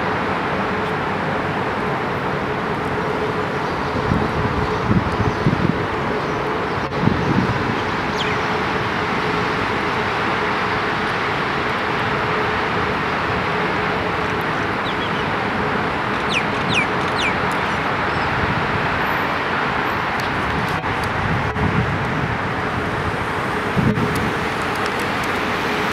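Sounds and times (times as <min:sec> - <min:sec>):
city road traffic hum: 0:00.0 - 0:25.9
bird chirping: 0:08.1 - 0:08.4, 0:14.8 - 0:15.3, 0:16.2 - 0:18.3.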